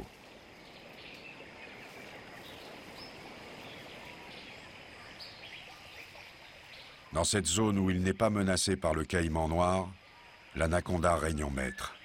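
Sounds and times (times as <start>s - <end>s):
background hiss: 0.0s - 12.0s
faint bird chirps: 0.0s - 12.0s.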